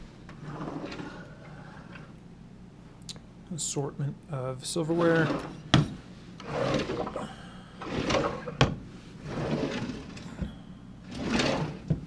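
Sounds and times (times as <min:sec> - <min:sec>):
wooden drawers sliding: 0:00.3 - 0:02.1, 0:04.9 - 0:07.2, 0:07.8 - 0:12.0.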